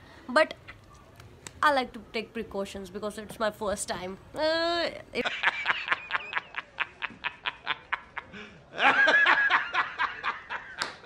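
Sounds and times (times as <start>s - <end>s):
man laughing hard: 5.2s - 10.8s.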